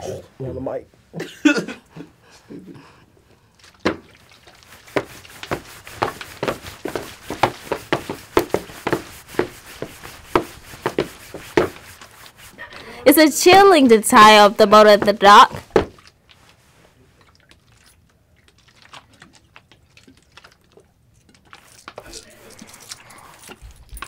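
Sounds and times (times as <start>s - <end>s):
footsteps walking: 4.5s - 16.1s.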